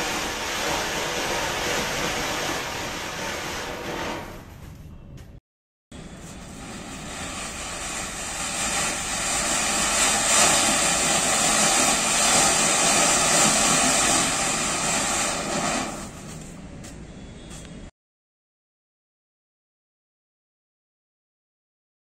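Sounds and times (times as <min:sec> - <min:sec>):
firework fountain hissing: 0:00.0 - 0:04.5, 0:06.0 - 0:16.8.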